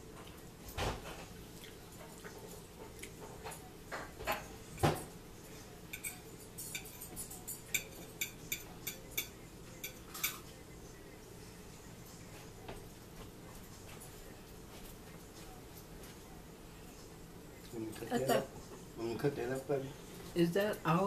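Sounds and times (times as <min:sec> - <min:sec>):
cutlery clicking on a plate: 0:05.9 - 0:10.5.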